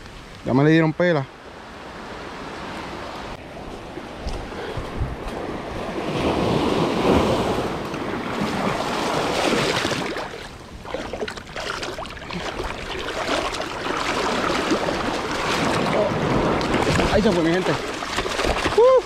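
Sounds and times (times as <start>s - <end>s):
small waves washing on sand: 1.5s - 19.0s
wind noise on microphone: 3.6s - 9.9s.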